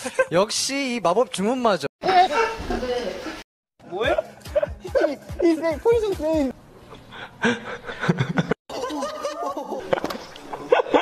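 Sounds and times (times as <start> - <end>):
young men laughing: 2.1 - 6.0, 7.1 - 11.0.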